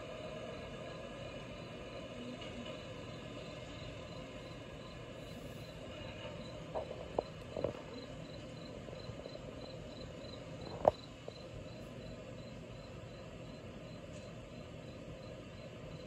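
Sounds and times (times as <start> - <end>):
insect chirping: 3.2 - 16.0.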